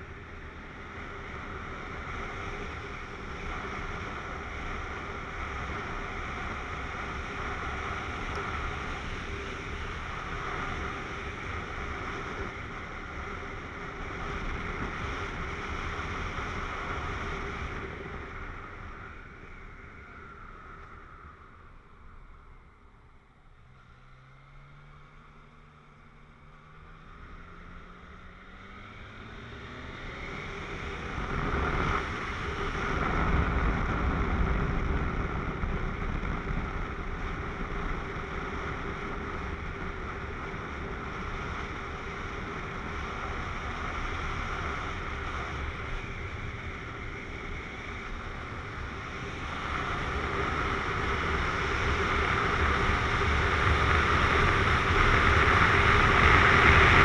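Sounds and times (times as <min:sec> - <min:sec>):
motorcycle engine accelerating: 0:23.4 - 0:57.0
wind rushing over microphone: 0:26.6 - 0:57.0.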